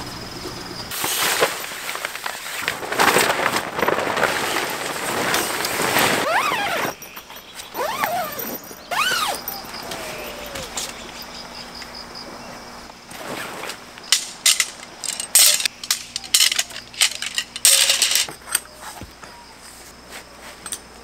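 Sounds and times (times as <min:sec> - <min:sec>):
tent fabric rustling: 0:00.9 - 0:07.0, 0:07.7 - 0:11.0, 0:13.1 - 0:13.9
tent poles clicking: 0:01.4 - 0:11.2, 0:13.5 - 0:19.0.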